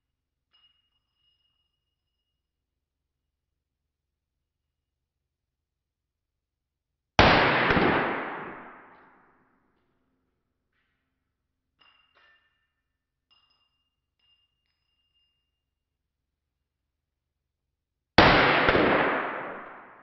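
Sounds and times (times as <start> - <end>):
metallic clinks with ringing: 0.1 - 2.9, 10.7 - 16.2
pistol shot with reverberation: 7.2 - 9.2, 18.2 - 20.0.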